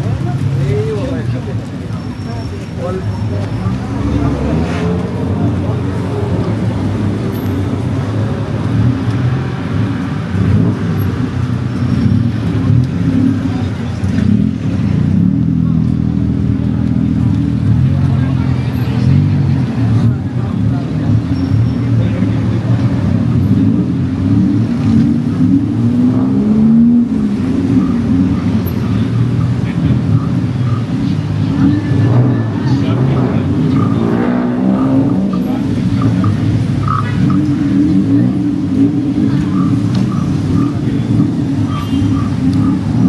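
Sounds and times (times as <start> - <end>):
street traffic rumble: 0.0 - 43.0
vehicle engines running: 0.0 - 43.0
engine revving up: 3.6 - 11.0, 22.4 - 29.0, 31.4 - 43.0.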